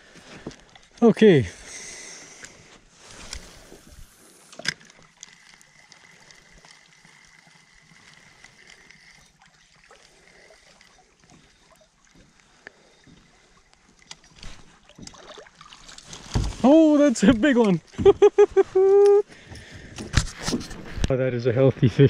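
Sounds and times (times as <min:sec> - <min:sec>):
quiet water lapping: 0:00.0 - 0:20.1
fishing reel ticking: 0:01.6 - 0:14.6.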